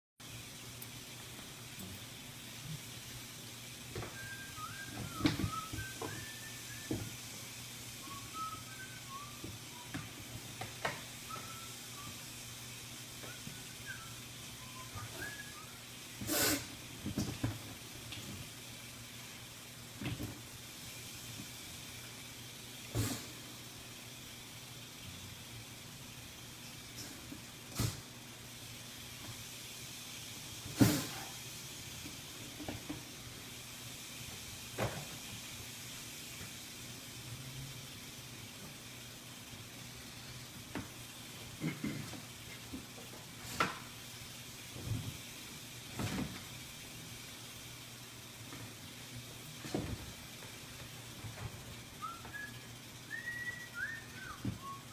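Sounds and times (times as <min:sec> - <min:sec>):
faint steady hiss: 0:00.2 - 0:54.9
snake hissing: 0:16.2 - 0:16.8.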